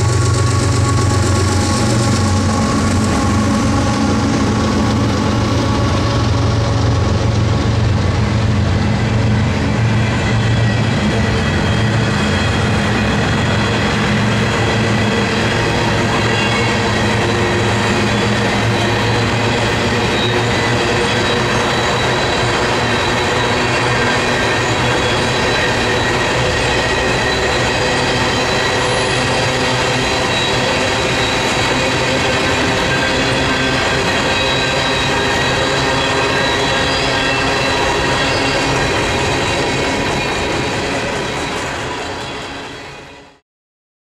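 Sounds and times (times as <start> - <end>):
train wheels rumbling: 0.0 - 43.4
high-pitched wheel squeal: 9.9 - 43.4.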